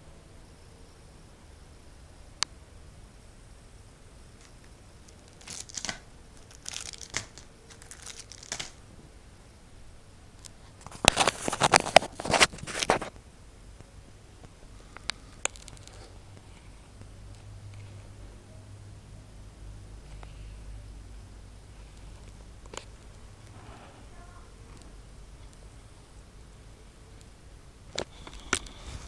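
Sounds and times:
plastic bags crinkling and tearing: 4.4s - 8.8s, 10.8s - 13.1s, 15.4s - 16.0s
sharp clicks: 4.4s - 8.8s.

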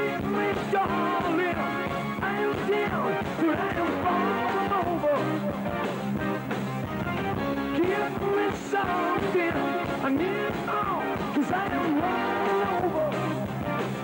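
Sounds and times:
live rock band playing: 0.0s - 14.0s
pitch-bending lead line: 2.9s - 11.4s.

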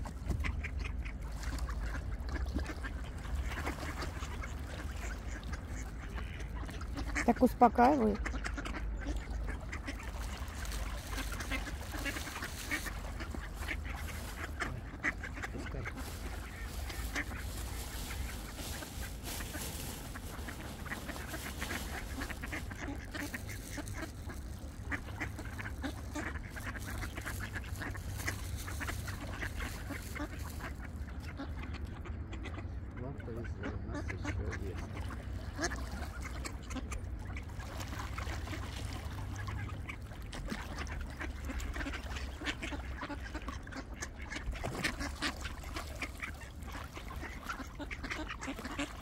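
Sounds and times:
ducks quacking: 0.0s - 49.0s
steady low rumble: 8.2s - 37.8s.

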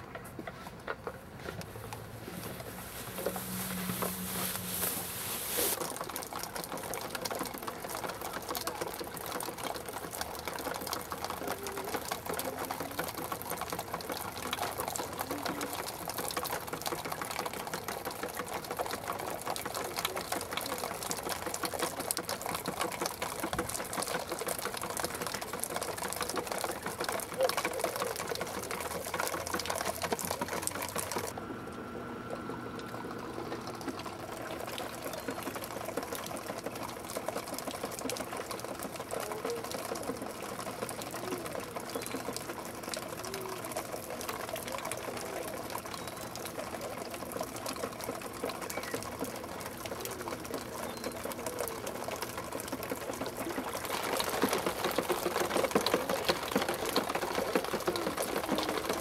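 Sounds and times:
plastic bottles clattering: 0.0s - 10.2s, 52.2s - 59.0s.

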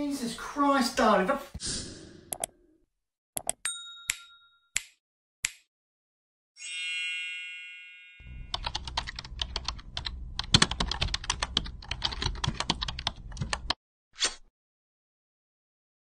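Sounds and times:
ringing ding: 3.7s - 4.7s
keystroke clicks: 8.5s - 13.8s.

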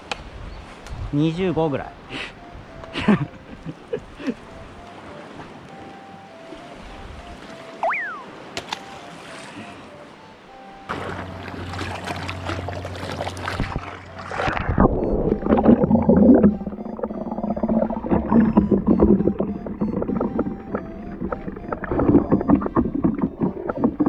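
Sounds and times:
muffled underwater sloshing: 10.9s - 24.0s.

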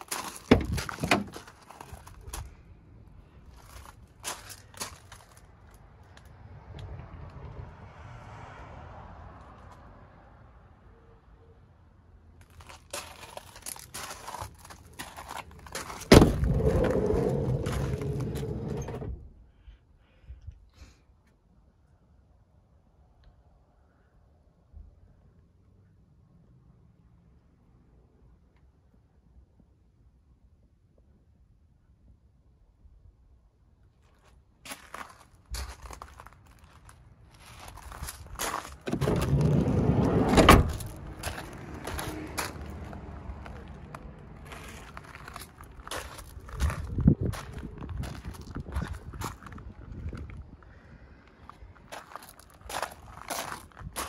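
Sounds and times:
footsteps crunching on gravel: 0.0s - 2.5s, 12.4s - 18.6s, 34.2s - 39.4s, 40.7s - 43.8s, 44.4s - 49.6s, 51.8s - 54.0s
van door unlatching clunk: 0.5s - 1.4s, 15.8s - 19.3s, 38.9s - 41.4s
loud low rumbling rustle: 14.1s - 19.5s, 37.4s - 50.5s
sliding door rumbling open: 16.0s - 19.3s, 38.6s - 42.5s.

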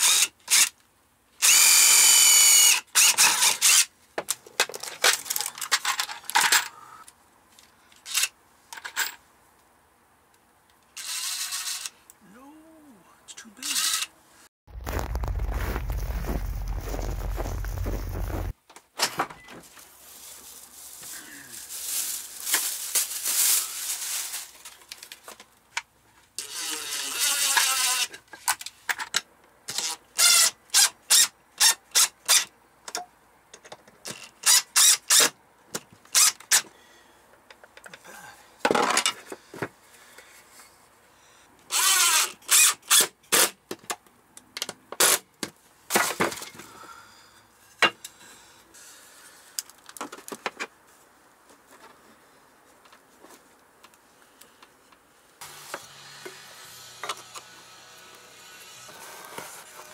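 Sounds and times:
cordless drill driving screws: 1.4s - 3.9s, 13.7s - 14.1s, 29.7s - 32.5s, 41.7s - 43.1s
plastic bag rustling: 14.7s - 18.6s, 19.6s - 25.3s.

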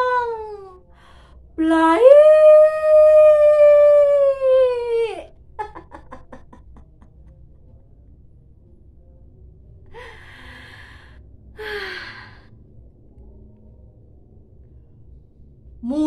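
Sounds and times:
woman sighing: 9.9s - 11.0s.

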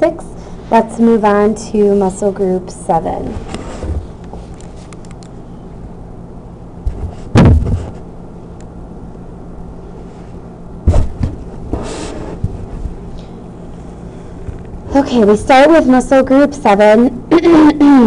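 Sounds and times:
object thumping on table: 6.8s - 8.0s, 10.9s - 12.6s.

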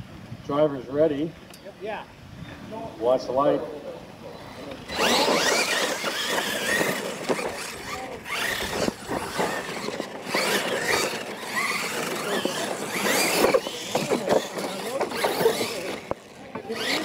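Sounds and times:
electric toy truck motors whining: 4.4s - 17.0s
tyres scrabbling on dirt: 4.9s - 17.0s.

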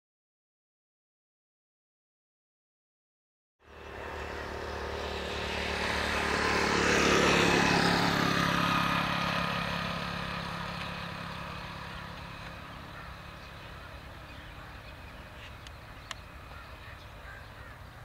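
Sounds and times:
motorcycle engine passing by: 3.6s - 18.0s.

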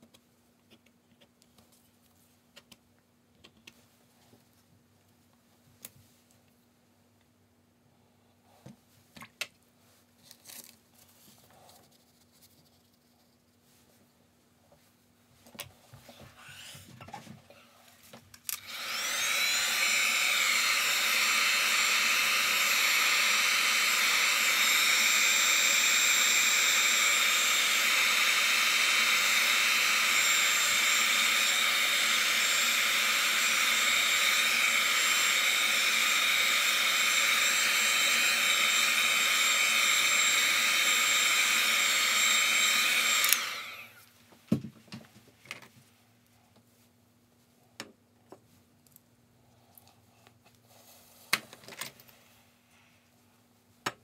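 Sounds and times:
hot-air dryer whining hiss: 18.5s - 44.1s.

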